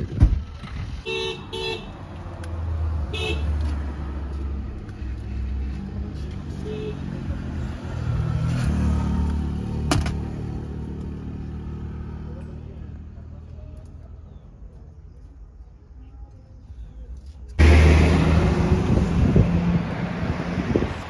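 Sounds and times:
traffic engine rumble: 0.0s - 21.0s
vehicle horn toots: 1.0s - 1.9s, 3.1s - 3.5s.

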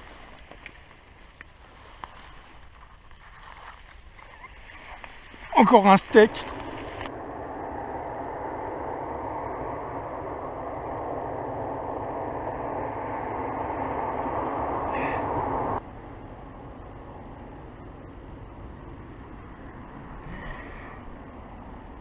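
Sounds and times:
steady rushing noise: 5.5s - 22.0s.

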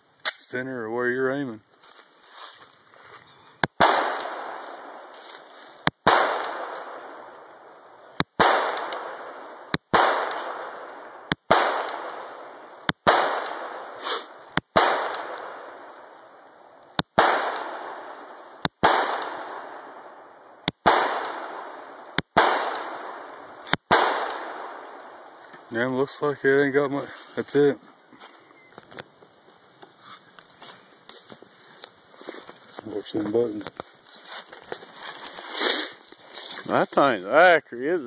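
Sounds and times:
pistol shots: 3.6s - 5.1s, 5.8s - 7.6s, 8.2s - 16.0s, 17.0s - 25.3s
gunshot echo through woods: 3.6s - 27.7s.

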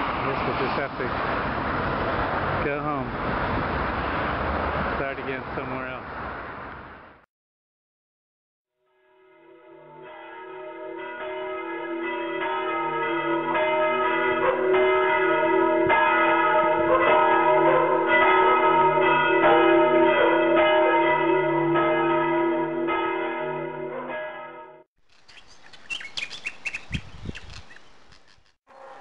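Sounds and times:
church bells ringing: 9.1s - 24.9s.

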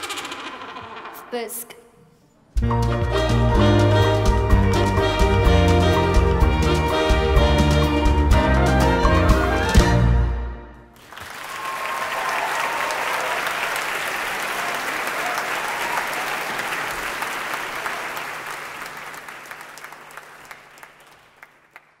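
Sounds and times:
audience applauding: 11.0s - 22.0s.

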